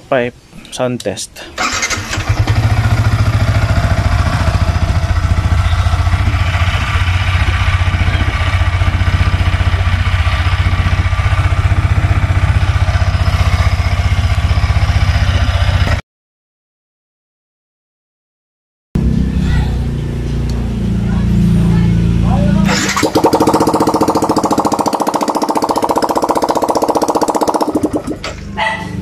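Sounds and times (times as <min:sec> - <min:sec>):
motorcycle engine starting and idling: 0:01.6 - 0:16.0, 0:22.2 - 0:29.0.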